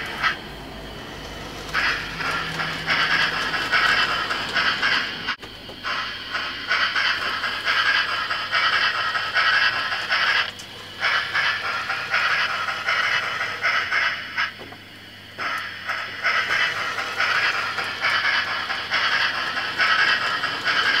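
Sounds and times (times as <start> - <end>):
model train wheels rattling on track: 1.1 - 14.5, 15.4 - 21.0.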